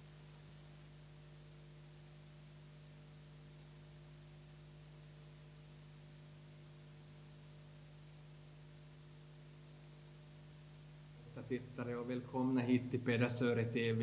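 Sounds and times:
steady electrical hum: 0:00.0 - 0:14.0
faint hiss: 0:10.8 - 0:14.0.

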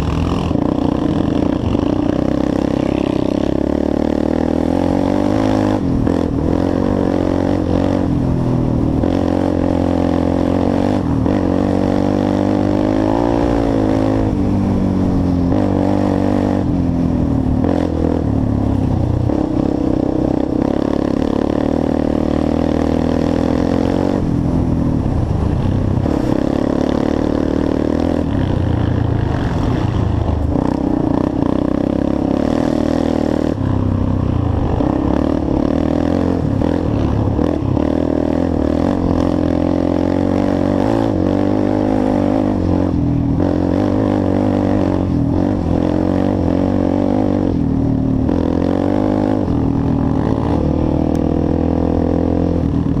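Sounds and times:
quad engine revving: 0:00.0 - 0:25.3, 0:26.0 - 0:53.0.

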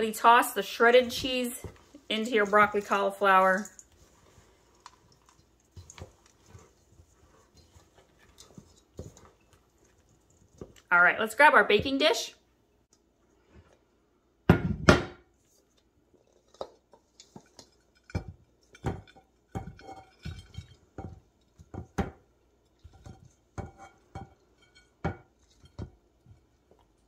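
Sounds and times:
spatula scraping: 0:00.0 - 0:10.9, 0:22.6 - 0:27.0.

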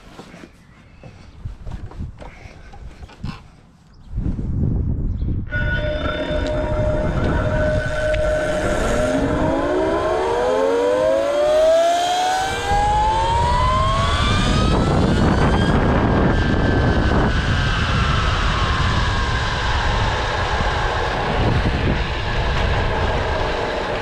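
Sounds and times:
wind and road noise rumble: 0:00.0 - 0:24.0
electric motors whining: 0:05.5 - 0:24.0.

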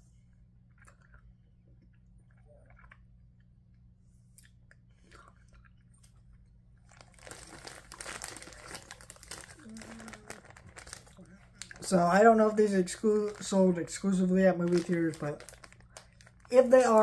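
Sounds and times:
chewing with mouth smacks: 0:00.6 - 0:07.0
plastic bag crinkling: 0:06.8 - 0:17.0.

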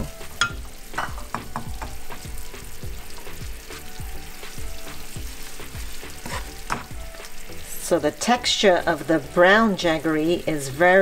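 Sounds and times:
sizzling and crackling in pan: 0:00.0 - 0:11.0
wooden spatula stirring: 0:04.4 - 0:07.4.

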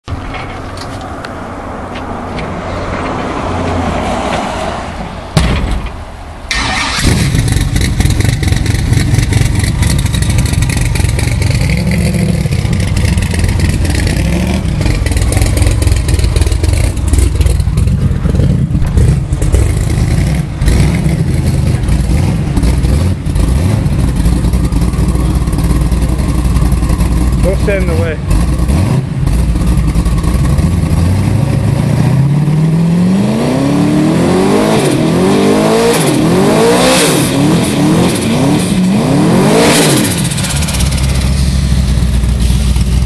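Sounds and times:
sharp crack: 0:05.3 - 0:31.0
engine running loud and uneven: 0:06.5 - 0:43.0.

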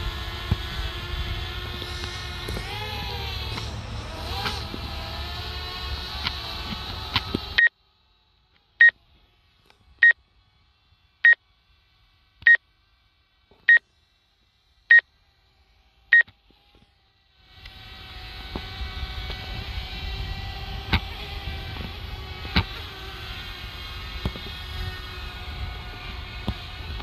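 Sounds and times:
whirring hum: 0:00.0 - 0:27.0.

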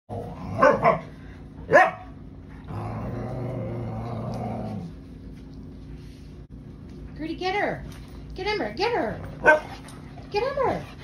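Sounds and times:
dog growling: 0:00.1 - 0:00.8, 0:02.5 - 0:05.0
dogs barking: 0:00.5 - 0:02.2, 0:09.3 - 0:09.9.

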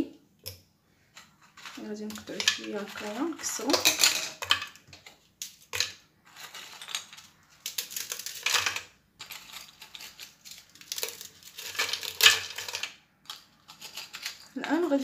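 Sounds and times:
biscuits snapping and crunching: 0:06.8 - 0:08.6, 0:09.3 - 0:14.6.

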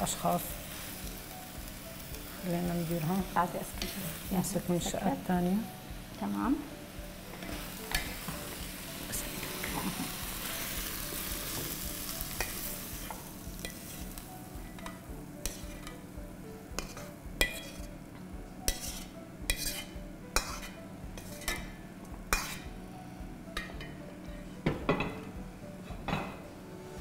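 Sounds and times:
vegetables sizzling in a pan: 0:00.0 - 0:17.9.

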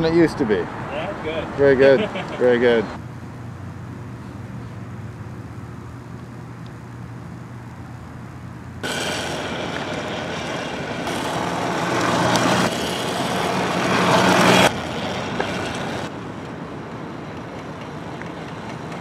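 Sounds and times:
electric mini bike hum: 0:02.4 - 0:19.0
rush of running noise: 0:08.8 - 0:19.0.

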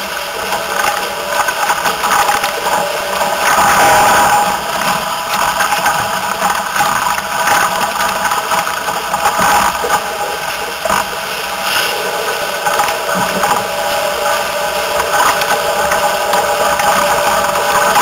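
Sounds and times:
rush of wind: 0:02.4 - 0:06.1.

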